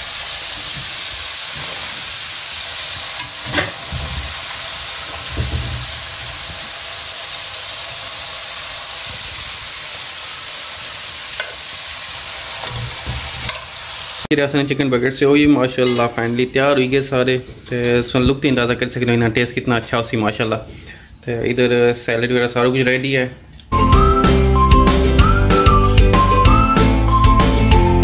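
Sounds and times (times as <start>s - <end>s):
potatoes deep-frying in oil: 0.0s - 16.1s.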